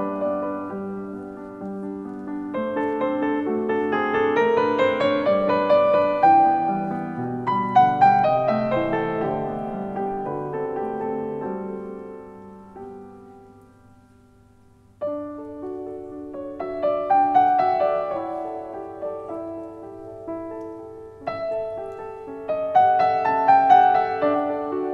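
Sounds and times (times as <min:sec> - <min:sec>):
piano music: 0:00.0 - 0:24.9.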